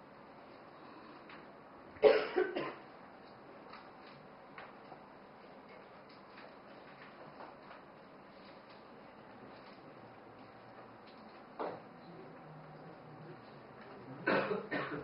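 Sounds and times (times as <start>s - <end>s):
person coughing: 2.0s - 2.8s, 14.2s - 15.0s.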